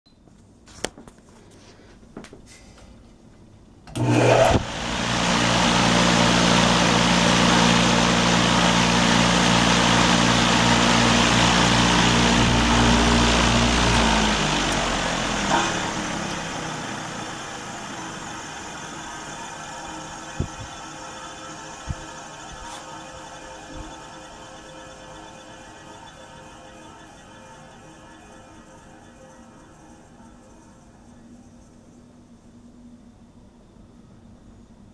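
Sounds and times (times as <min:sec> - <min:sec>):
fan air rushing: 0:03.9 - 0:31.8
electric motor hum: 0:03.9 - 0:32.1.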